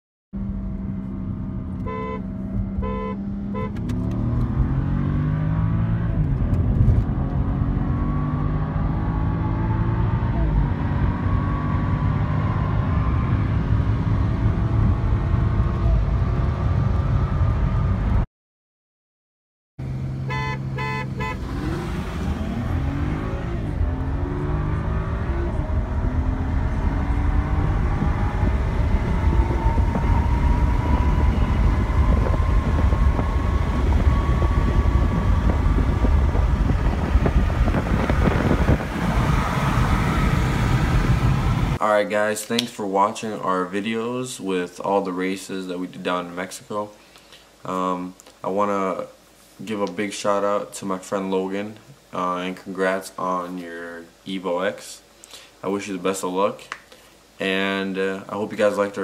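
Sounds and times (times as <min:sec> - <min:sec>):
car engines accelerating hard: 0:00.6 - 0:18.2, 0:19.8 - 0:41.8
car horn honks: 0:01.8 - 0:03.9, 0:20.2 - 0:21.7
wind noise: 0:24.9 - 0:41.8.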